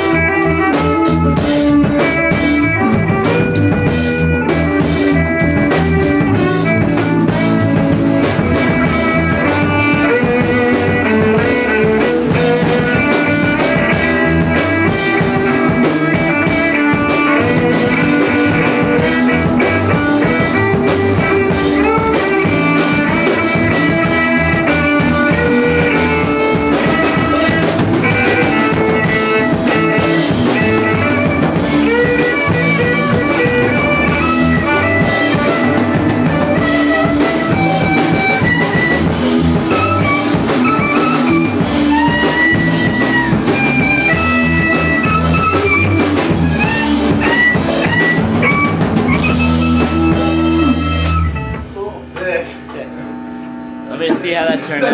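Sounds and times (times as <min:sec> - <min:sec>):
drum kit: 0:00.0 - 0:54.9
electric bass: 0:00.0 - 0:54.9
electric guitar: 0:00.0 - 0:54.9
bowed violin: 0:13.8 - 0:51.2.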